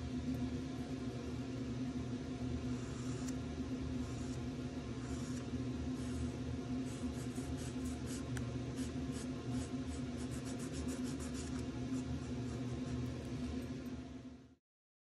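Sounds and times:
steady low hum: 0:00.0 - 0:14.6
marker scratching on paper: 0:05.0 - 0:13.0.

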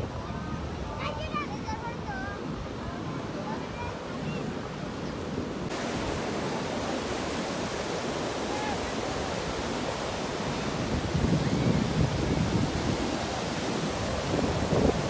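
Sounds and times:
sea surf breaking on beach: 0:05.4 - 0:15.0.

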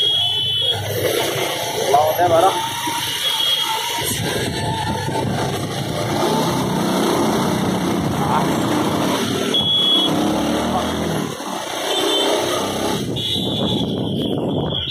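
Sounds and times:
car and scooter engines running: 0:00.0 - 0:14.9
short high beep: 0:09.4 - 0:10.3.

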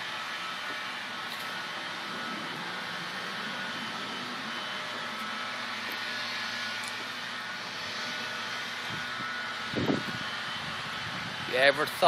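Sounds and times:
faint hum: 0:01.0 - 0:09.2.

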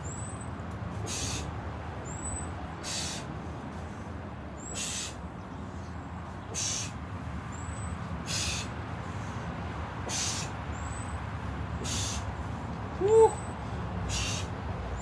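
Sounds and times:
man hissing breaths: 0:01.0 - 0:01.6, 0:02.8 - 0:05.2, 0:06.5 - 0:07.0, 0:08.2 - 0:10.6, 0:11.8 - 0:12.6, 0:13.6 - 0:14.6.

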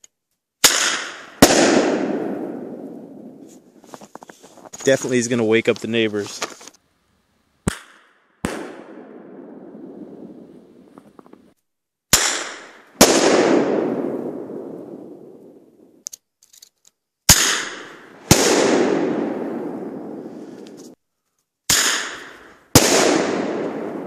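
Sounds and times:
launcher crack: 0:00.6 - 0:02.8, 0:07.6 - 0:09.2, 0:12.1 - 0:14.4, 0:17.3 - 0:21.0, 0:21.7 - 0:24.0
banger explosion blast: 0:17.4 - 0:20.3.

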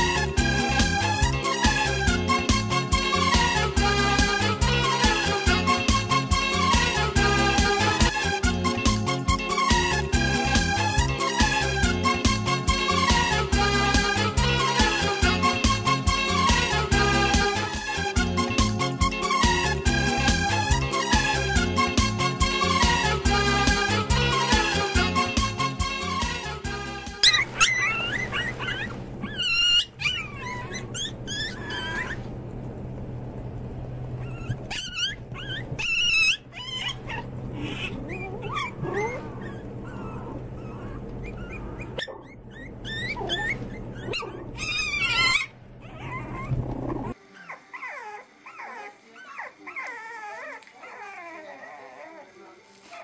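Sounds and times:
puppies yapping and whimpering: 0:27.2 - 0:32.3, 0:34.1 - 0:53.0
steady low hum: 0:28.2 - 0:35.8.

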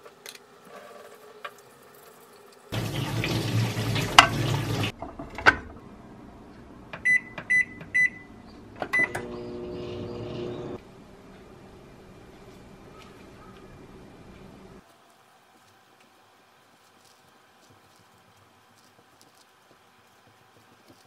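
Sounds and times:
water running from tap: 0:01.6 - 0:05.0
microwave oven humming: 0:06.9 - 0:14.8
microwave keypad beeps: 0:07.0 - 0:10.8.

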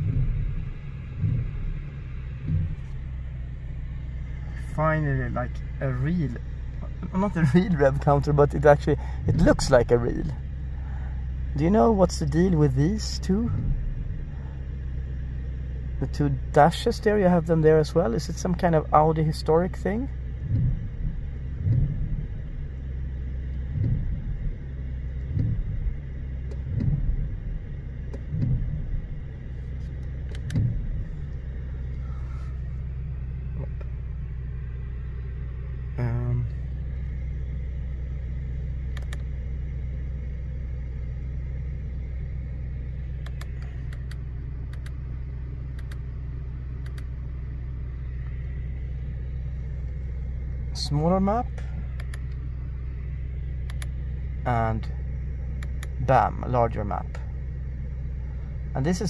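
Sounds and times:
car engine idling: 0:00.0 - 0:59.0
faint clicks: 0:38.9 - 0:39.3, 0:43.2 - 0:45.0, 0:45.7 - 0:46.0, 0:46.8 - 0:47.1, 0:51.9 - 0:52.4.

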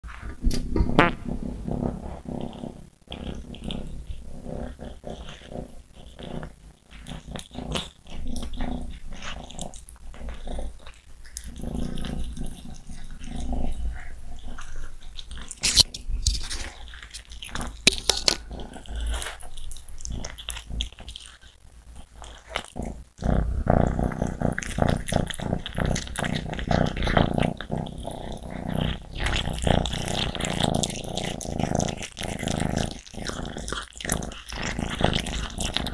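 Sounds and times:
kitten growling: 0:00.5 - 0:15.9, 0:16.5 - 0:35.9
kittens licking and chewing: 0:01.6 - 0:35.9.

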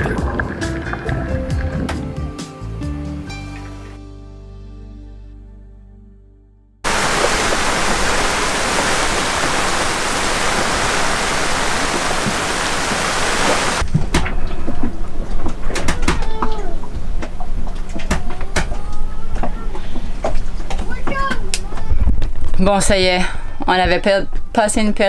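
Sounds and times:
music: 0:00.0 - 0:06.8
heavy rain pouring: 0:06.8 - 0:13.9.

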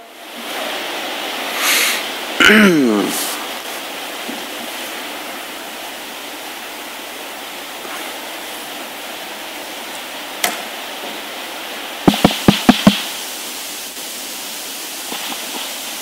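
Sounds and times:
room noise hiss: 0:00.0 - 0:16.0
sharp click: 0:10.4 - 0:10.6.

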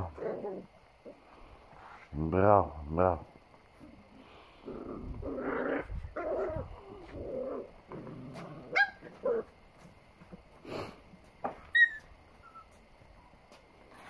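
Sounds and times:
puppies growling: 0:00.0 - 0:01.6, 0:03.7 - 0:09.9
puppy yips: 0:08.7 - 0:09.4, 0:11.6 - 0:12.8.

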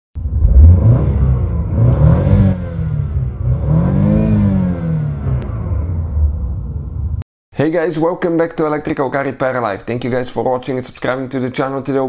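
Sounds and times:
car engine revving: 0:00.2 - 0:07.2.

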